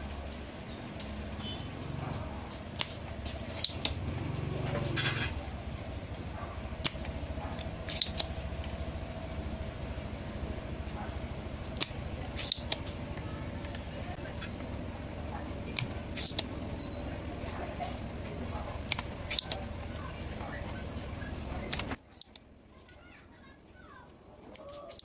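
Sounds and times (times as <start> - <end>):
low hum: 0.0 - 22.0
desoldering pump clicks: 18.8 - 19.6.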